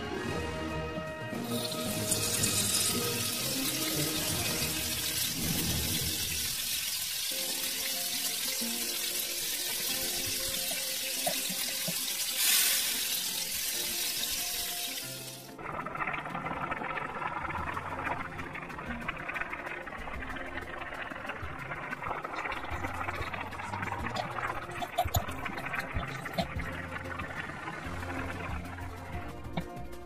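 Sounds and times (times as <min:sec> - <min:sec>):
soft background music: 0:00.0 - 0:30.0
oil sizzling in a wok: 0:01.4 - 0:15.6.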